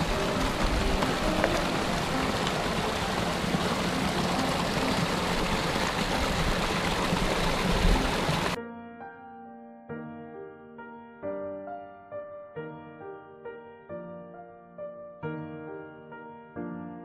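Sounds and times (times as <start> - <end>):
creek rushing over rocks: 0.0 - 8.6.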